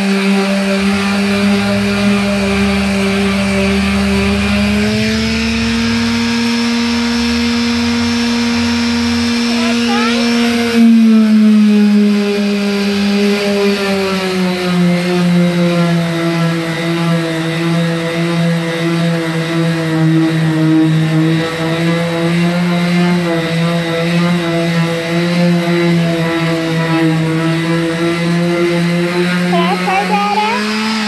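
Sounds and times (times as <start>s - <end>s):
electric palm sander whining: 0.0s - 31.0s.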